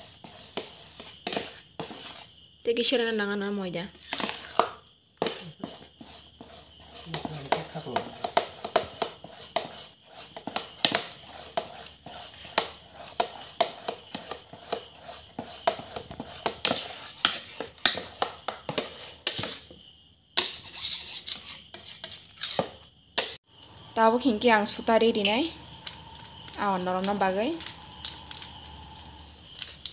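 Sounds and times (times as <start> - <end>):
metal spoon scraping steel bowl: 3.9 - 19.7, 20.4 - 22.7.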